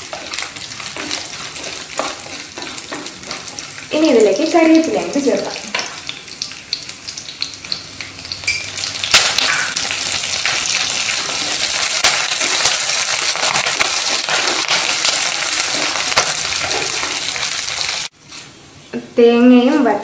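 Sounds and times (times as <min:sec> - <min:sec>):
wooden spatula stirring: 0:00.0 - 0:03.9, 0:11.2 - 0:18.0
oil sizzling and crackling: 0:00.0 - 0:18.3.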